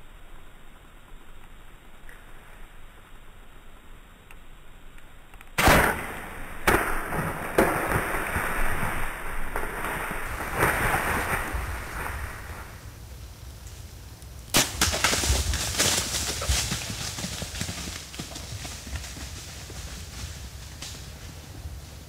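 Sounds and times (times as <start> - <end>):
sudden loud crack: 5.6 - 12.7, 14.5 - 15.9
crashing and rustling: 5.6 - 12.8, 14.6 - 17.1.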